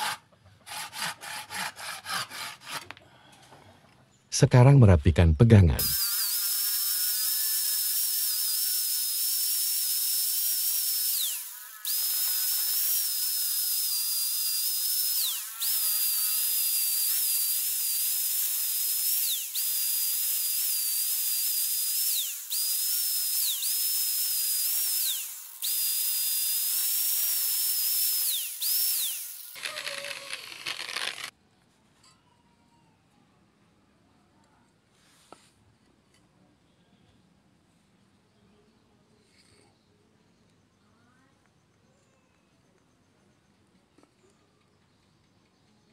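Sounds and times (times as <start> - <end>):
angle grinder sanding wood: 0.0 - 2.9, 5.8 - 31.3.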